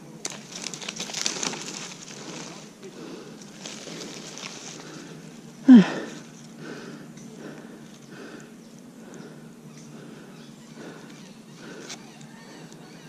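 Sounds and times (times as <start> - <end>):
leaves rustling: 0.0 - 6.6
quiet breathing: 1.0 - 13.0
man grunting: 5.6 - 6.2.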